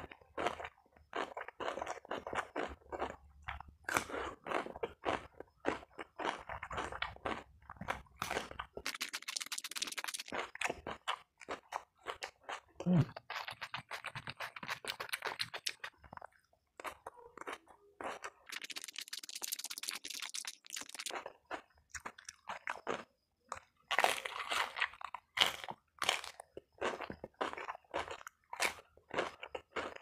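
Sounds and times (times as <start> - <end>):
chewing and crunching: 0.0 - 30.0.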